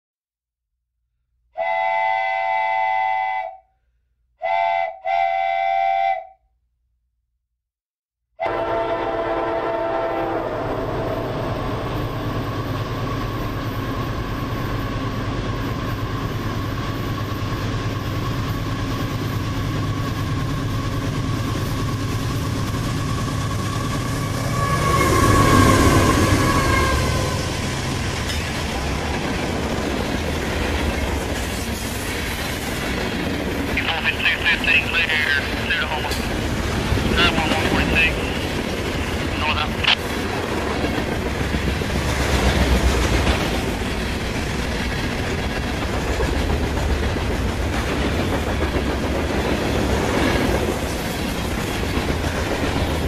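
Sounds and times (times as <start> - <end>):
diesel locomotive horn blasts: 1.6 - 3.7, 4.4 - 6.4, 8.4 - 12.2, 24.1 - 27.7
freight train rumbling on track: 8.4 - 53.0.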